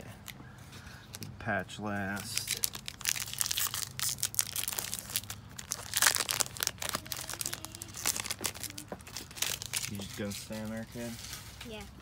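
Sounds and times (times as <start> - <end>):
plastic wrapper crinkling and tearing: 2.0 - 11.1.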